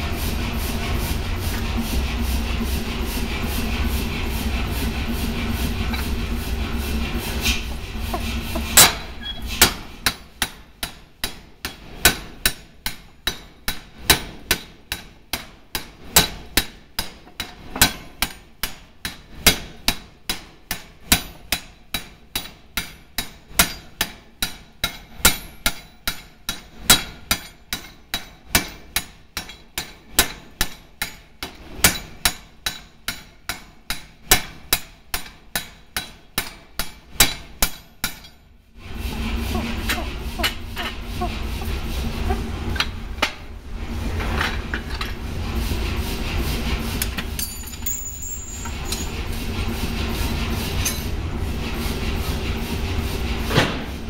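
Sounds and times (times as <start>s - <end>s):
low running rumble: 0.0s - 10.0s, 38.8s - 54.0s
power hammer striking hot steel: 7.4s - 38.4s.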